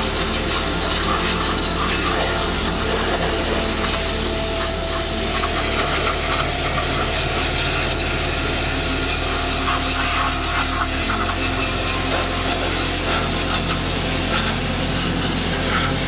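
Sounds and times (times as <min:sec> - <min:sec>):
pressure washer spraying metal: 0:00.0 - 0:16.0.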